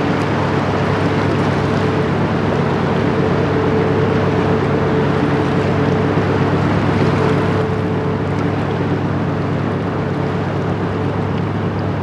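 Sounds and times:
ship diesel engine droning: 0:00.0 - 0:12.0
wind and water hiss: 0:00.0 - 0:12.0.

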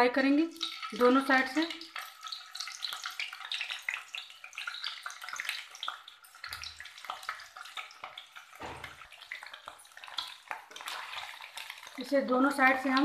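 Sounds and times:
cheese cubes sizzling in oil: 0:00.0 - 0:13.0.

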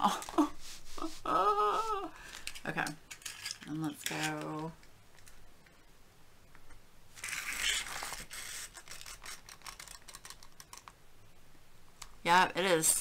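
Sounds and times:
tape measure scraping rustle: 0:07.2 - 0:09.9.

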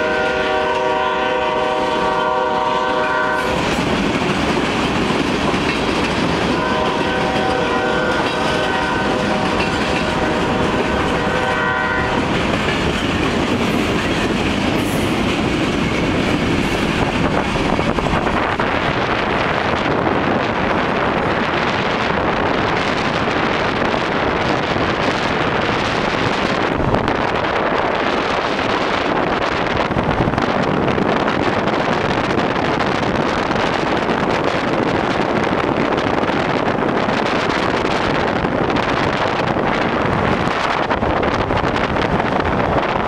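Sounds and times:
locomotive horn blast: 0:00.0 - 0:03.6, 0:06.5 - 0:12.3
train wheels on rails: 0:00.0 - 0:43.0.

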